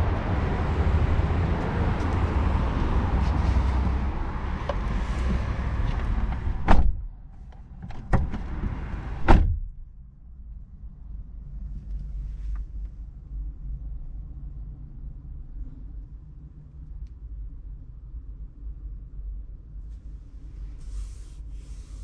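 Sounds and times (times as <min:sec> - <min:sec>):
quiet low hum: 0:09.6 - 0:22.0.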